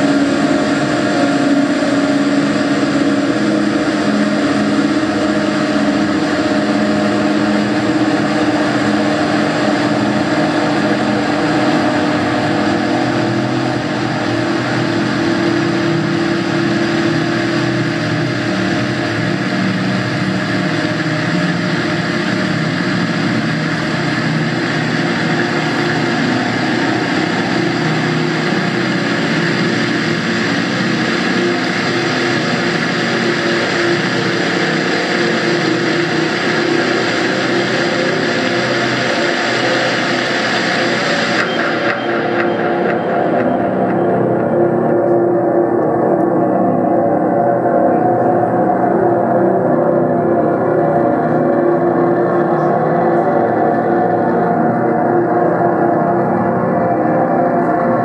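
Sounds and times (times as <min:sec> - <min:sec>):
electronic drone music: 0:00.0 - 0:58.0.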